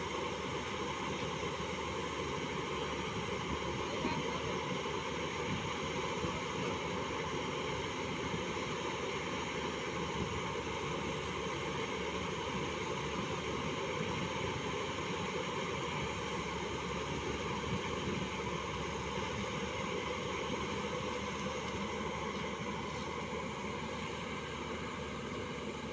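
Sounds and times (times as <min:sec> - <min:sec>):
excavator diesel engine running: 0:00.0 - 0:25.9.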